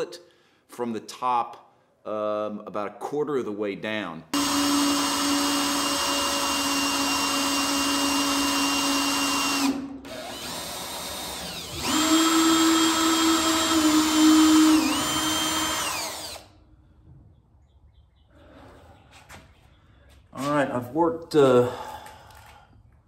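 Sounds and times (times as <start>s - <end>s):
cordless drill boring metal: 4.4s - 16.6s.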